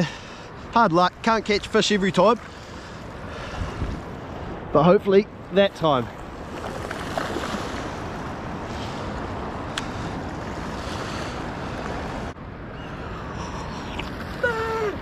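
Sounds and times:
wind on microphone: 3.2 - 4.7
small waves washing on shore: 5.8 - 12.4.

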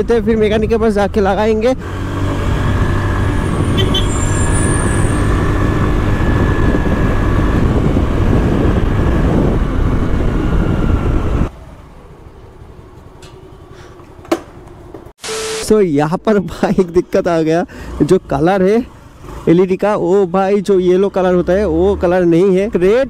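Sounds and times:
motor vehicle and street noise: 0.0 - 23.0.

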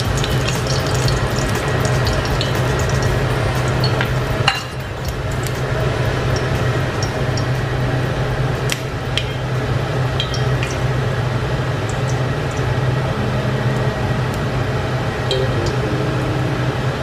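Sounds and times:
hot oil popping and ticking: 0.0 - 13.0
steady low hum: 0.0 - 17.0.

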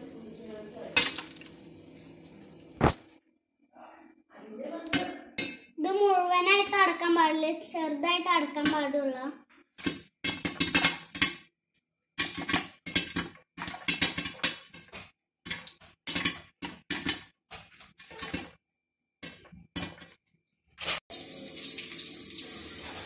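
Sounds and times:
popcorn popping in covered pot: 1.0 - 1.6, 9.8 - 11.4, 12.2 - 18.6.

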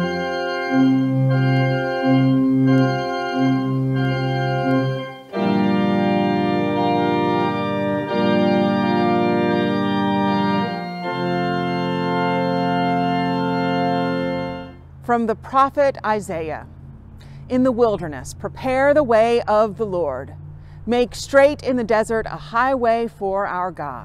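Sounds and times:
organ playing chords: 0.0 - 15.4.

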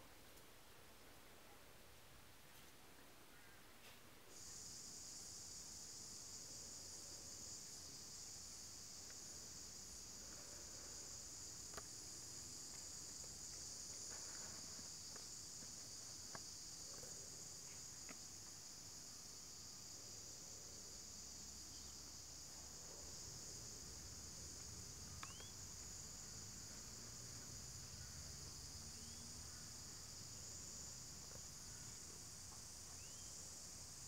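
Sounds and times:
insect chorus buzzing: 4.3 - 34.0
faint ticks: 24.6 - 25.9.

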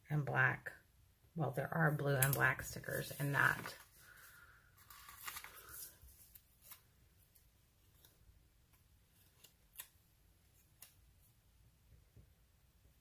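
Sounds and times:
light paper rustling: 2.2 - 11.3.

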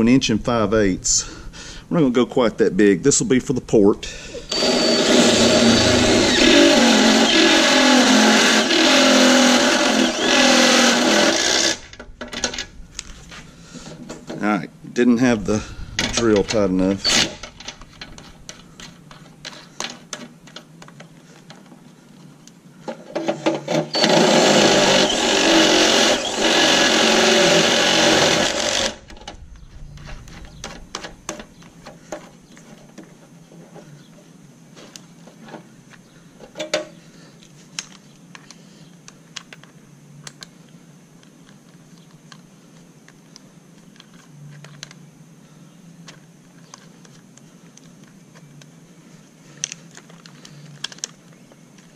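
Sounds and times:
drill cutting through steel: 4.5 - 11.9, 17.0 - 17.5, 23.8 - 29.0.

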